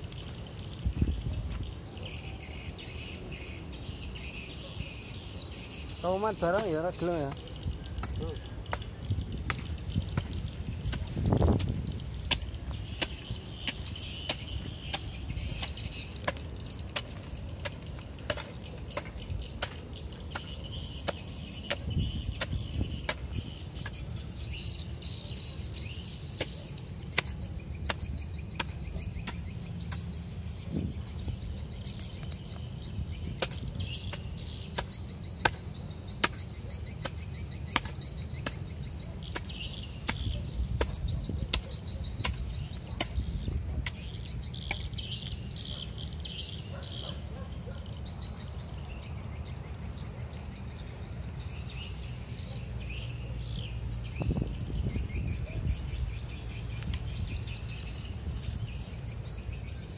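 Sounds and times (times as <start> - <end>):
insects trilling: 0.0 - 48.7
bird chirps: 0.0 - 59.9
hoe chopping into stony soil: 8.0 - 24.2, 26.4 - 30.9, 33.3 - 44.8.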